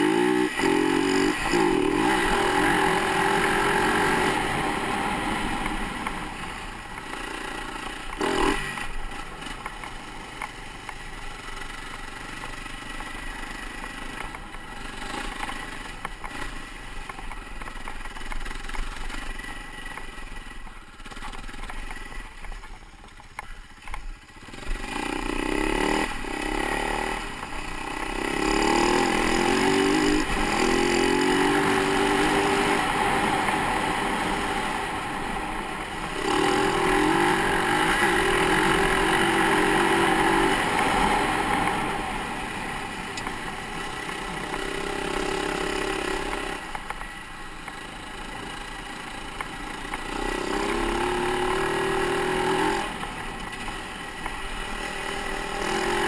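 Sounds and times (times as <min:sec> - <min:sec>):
dirt bike engine revving: 0:00.0 - 0:09.6, 0:24.4 - 0:42.9, 0:43.8 - 0:46.7, 0:48.2 - 0:53.7, 0:54.5 - 0:56.0.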